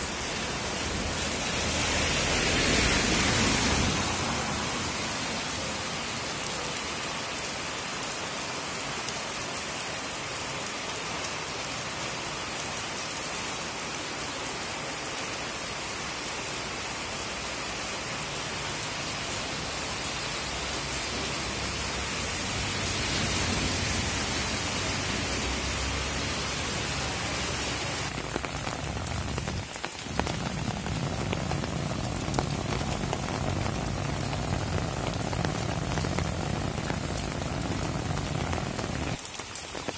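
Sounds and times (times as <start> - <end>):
steady rain: 0.0 - 39.9
raindrop hits: 27.2 - 39.9.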